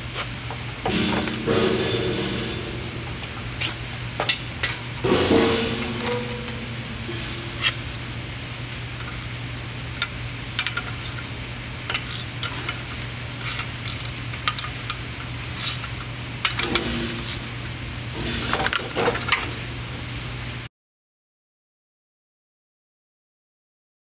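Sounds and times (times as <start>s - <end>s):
steady low hum: 0.0s - 20.7s
metal clicks of air-line fittings: 7.6s - 19.6s.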